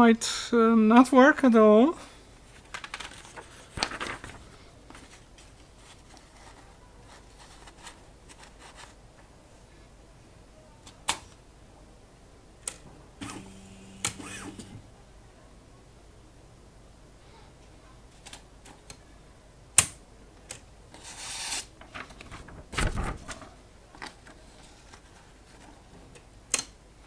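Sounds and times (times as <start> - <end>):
paper rustling: 2.5 - 9.0, 21.0 - 26.0
typewriter mechanical clicks: 14.0 - 14.7.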